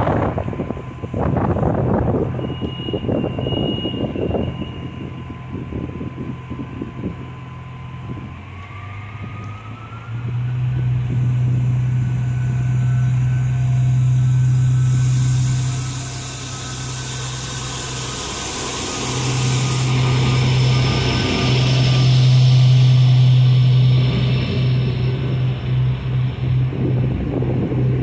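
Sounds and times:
diesel railcar engine drone: 0:00.0 - 0:28.0
faint whine rising in pitch: 0:04.3 - 0:28.0
loud hiss: 0:11.0 - 0:26.2.

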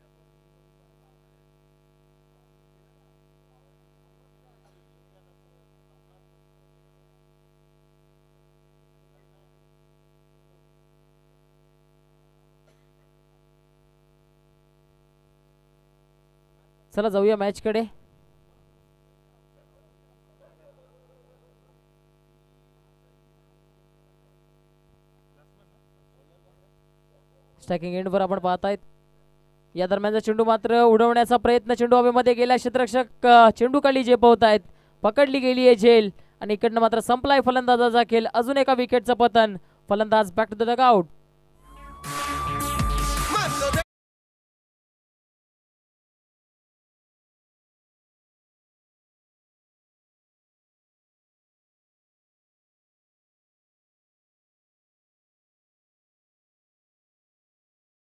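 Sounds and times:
electrical mains hum: 0:00.0 - 0:43.0.

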